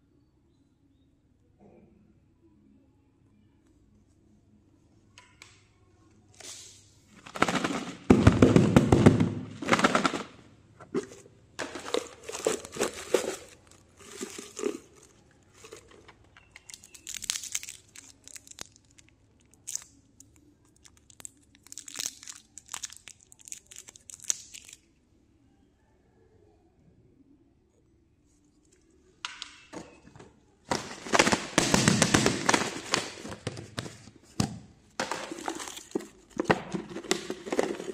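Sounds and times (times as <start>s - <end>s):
plastic candy wrappers crinkling: 9.6s - 10.4s, 11.0s - 24.9s, 30.7s - 33.9s, 35.0s - 37.9s
wrapper peeled open: 11.6s - 16.0s, 16.6s - 24.9s.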